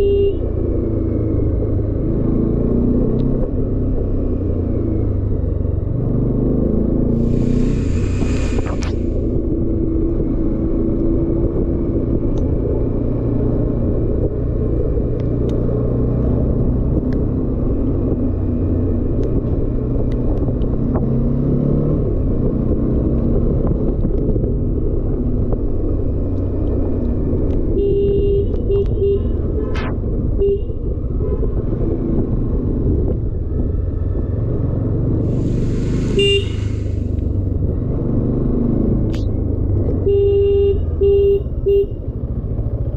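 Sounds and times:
horn short beeps: 0.0 - 0.4, 36.0 - 36.9, 40.0 - 42.0
wind rumble on microphone: 7.0 - 40.1.

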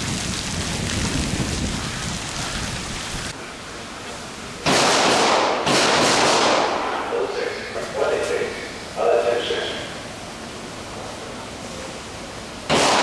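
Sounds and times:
handgun fire: 4.7 - 6.9, 12.7 - 13.0.

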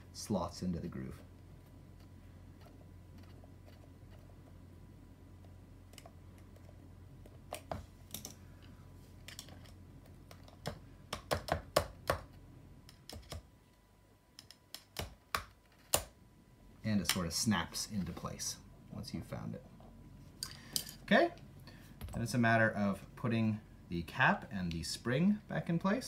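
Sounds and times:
faint steady hum: 0.0 - 26.0.

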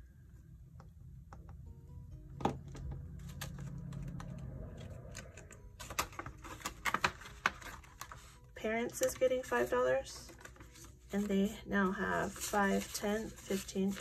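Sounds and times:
paper banknotes rustling: 5.2 - 14.0.

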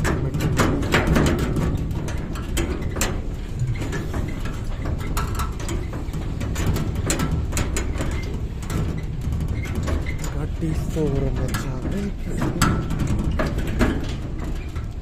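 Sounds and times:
sharp rattles and knocks: 0.0 - 15.0.

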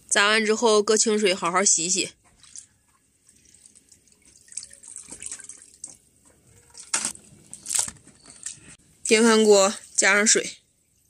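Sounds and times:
water splashing in plastic basin: 2.2 - 8.7.

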